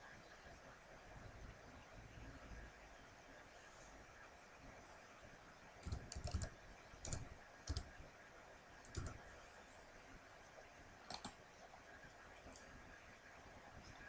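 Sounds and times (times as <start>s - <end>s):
keyboard keystrokes: 5.8s - 7.9s, 8.9s - 9.2s, 11.1s - 11.4s
mouse clicks: 5.8s - 7.9s, 8.9s - 9.2s, 11.1s - 11.4s.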